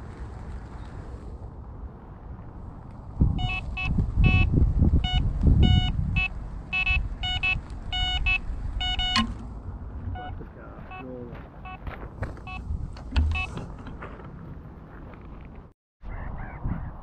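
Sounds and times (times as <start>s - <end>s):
wind buffeting microphone: 0.0s - 10.6s, 11.9s - 15.5s, 16.1s - 17.0s
bite alarm beeping: 3.4s - 9.4s, 10.1s - 11.1s, 13.2s - 13.5s.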